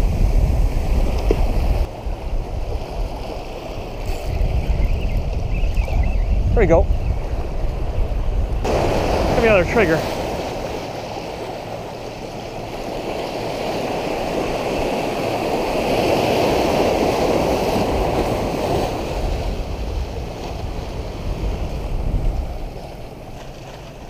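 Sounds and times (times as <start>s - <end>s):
ocean surf breaking on rocks: 6.1s - 24.0s.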